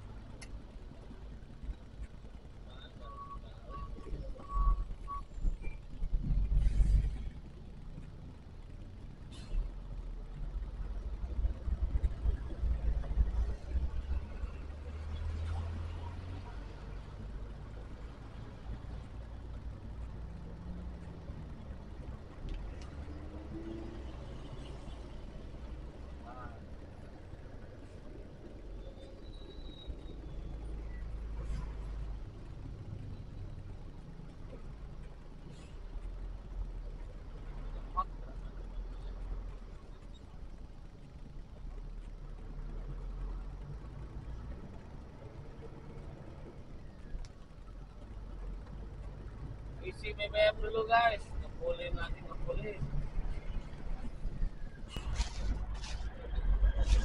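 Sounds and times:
truck engine rumbling: 0:00.0 - 0:57.0
faint high chirp: 0:28.7 - 0:31.2.

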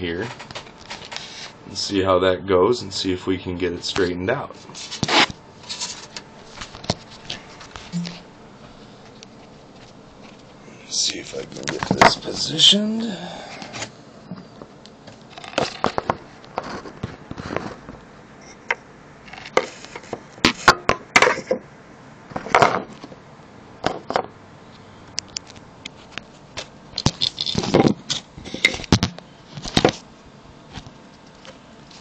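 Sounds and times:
objects handled on a workbench: 0:25.9 - 0:30.0.

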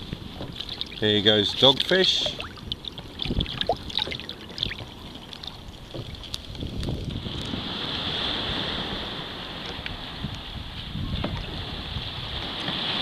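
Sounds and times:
small water splashes: 0:00.0 - 0:08.3
wind and water rushing: 0:00.0 - 0:13.0.

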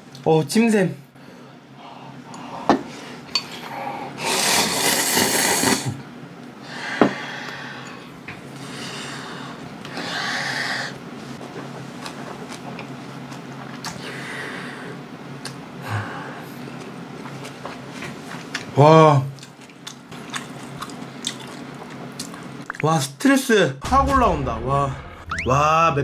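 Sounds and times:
slurping noodles: 0:04.2 - 0:06.0
chewing: 0:19.3 - 0:22.8.

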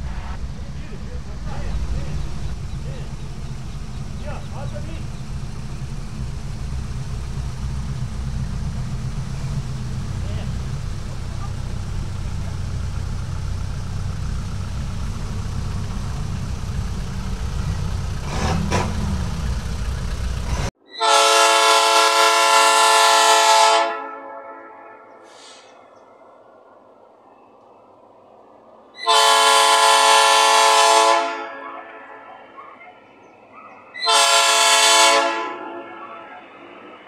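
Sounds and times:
low rumble: 0:00.0 - 0:20.7
locomotive air horn blast: 0:20.5 - 0:25.8, 0:29.0 - 0:32.5, 0:34.0 - 0:36.7.

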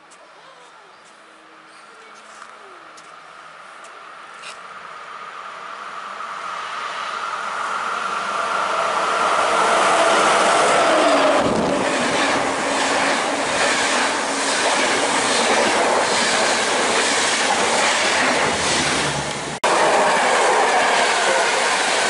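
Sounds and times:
express train passing: 0:03.4 - 0:22.0
passenger train rushing past: 0:04.8 - 0:22.0.

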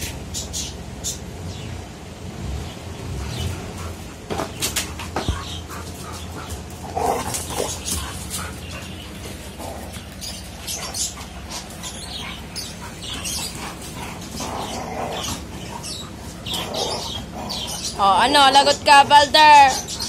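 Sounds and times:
dogs whining and yipping: 0:03.2 - 0:18.2.

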